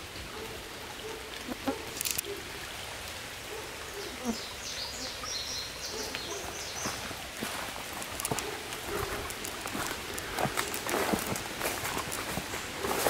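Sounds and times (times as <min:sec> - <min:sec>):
brief rustle: 0:02.0 - 0:02.3
songbird singing: 0:03.9 - 0:07.2
water hissing: 0:06.8 - 0:13.0.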